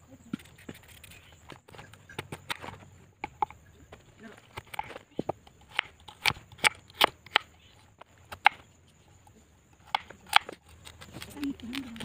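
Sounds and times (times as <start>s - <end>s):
knife chopping on wooden board: 9.8s - 11.0s.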